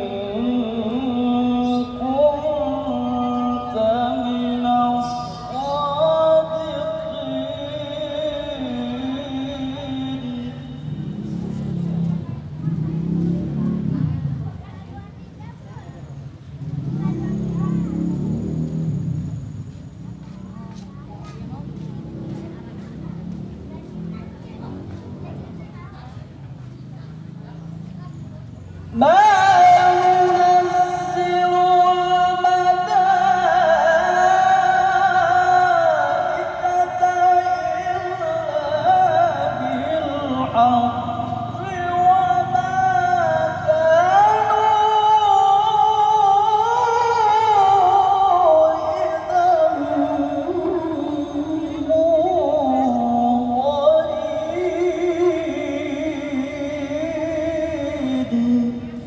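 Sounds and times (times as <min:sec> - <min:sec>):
man reciting melodically over loudspeaker: 0:00.0 - 0:13.9, 0:28.8 - 0:59.0.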